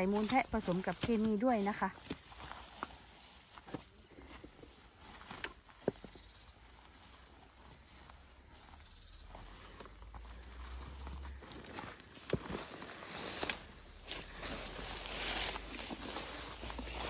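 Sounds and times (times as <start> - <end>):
wheelbarrow rolling rumble: 7.9 - 17.0
wheelbarrow knocks and rustles: 11.0 - 17.0.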